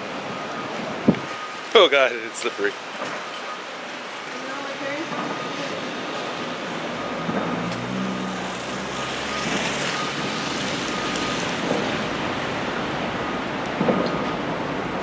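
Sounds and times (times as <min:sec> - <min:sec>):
traffic on slushy road: 0:00.0 - 0:15.0
low engine hum: 0:05.3 - 0:15.0
vehicle passing hiss: 0:07.5 - 0:12.7.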